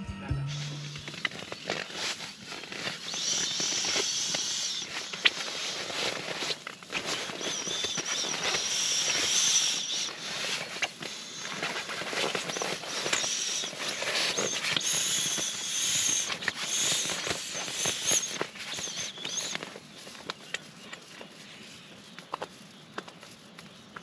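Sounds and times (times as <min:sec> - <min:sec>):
foam mat crinkling: 0:00.6 - 0:24.0
frogs calling: 0:02.9 - 0:23.1.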